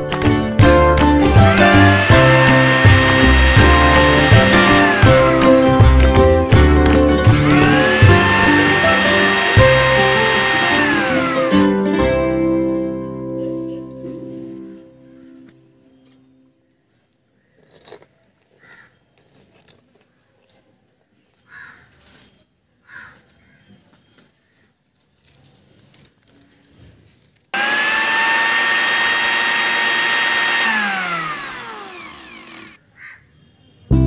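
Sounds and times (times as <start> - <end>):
toy blender motor whining: 1.3 - 6.1, 7.2 - 11.7, 27.6 - 32.8.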